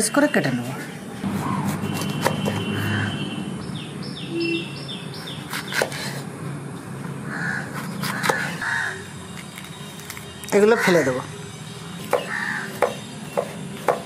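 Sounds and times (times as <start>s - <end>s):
knife cutting peppers on board: 1.3s - 2.9s, 5.2s - 6.3s, 7.7s - 8.6s, 12.0s - 14.0s.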